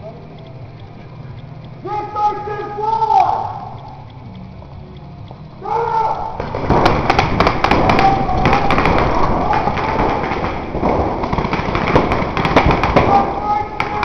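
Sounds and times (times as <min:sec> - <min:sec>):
players shouting: 0:01.8 - 0:04.0, 0:05.6 - 0:14.0
paintball markers firing: 0:05.8 - 0:14.0.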